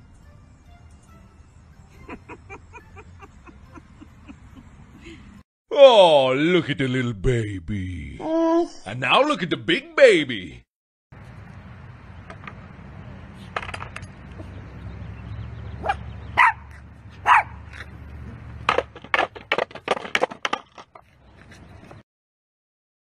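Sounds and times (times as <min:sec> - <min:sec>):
small dog barking: 0:15.8 - 0:17.6.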